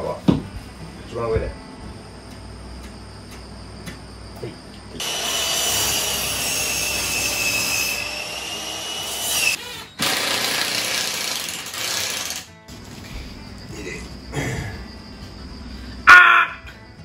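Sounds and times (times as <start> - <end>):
cordless drill whining: 5.0 - 12.5
screw biting into wood: 9.3 - 12.4.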